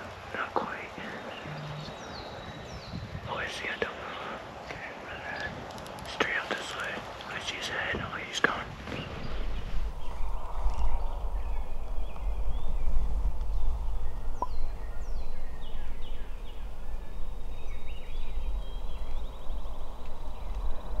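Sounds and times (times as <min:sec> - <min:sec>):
songbirds chirping: 0:00.0 - 0:21.0
low rumble: 0:08.5 - 0:21.0.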